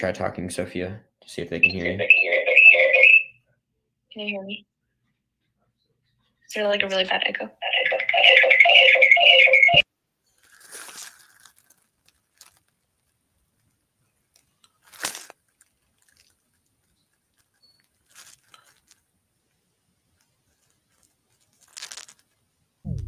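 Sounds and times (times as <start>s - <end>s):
rustling and scraping on microphone: 15.6s - 19.1s, 20.1s - 23.0s.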